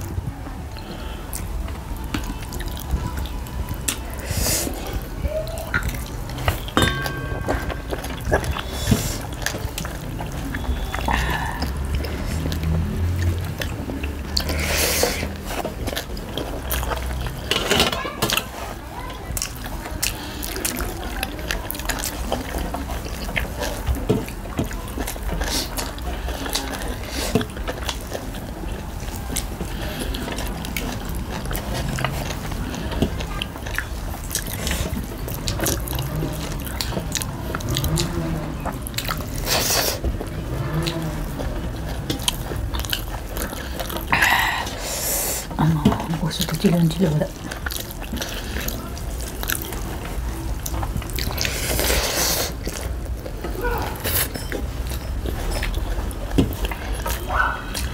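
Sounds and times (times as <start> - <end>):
wet chewing and lip smacking: 0.0 - 6.8, 7.6 - 17.5, 18.3 - 57.9.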